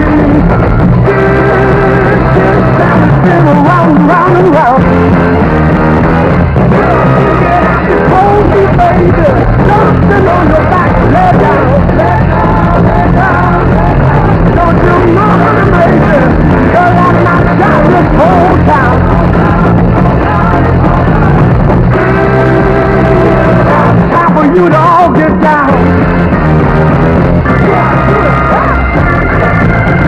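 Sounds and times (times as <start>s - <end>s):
wavering lead melody: 0.0s - 24.7s, 25.7s - 30.0s
drum kit playing: 0.0s - 30.0s
steady bass line: 0.0s - 30.0s.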